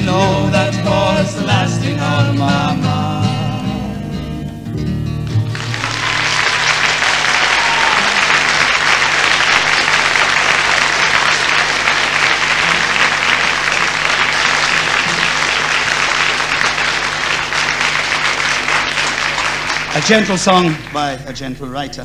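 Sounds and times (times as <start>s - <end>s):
audience applauding: 5.2s - 21.4s.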